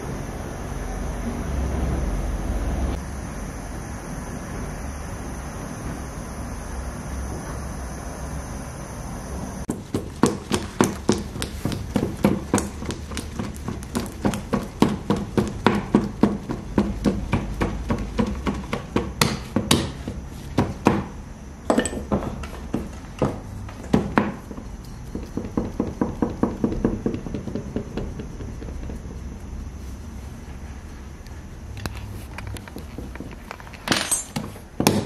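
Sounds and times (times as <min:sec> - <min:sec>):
hands slapping dough on board: 0:09.7 - 0:21.1.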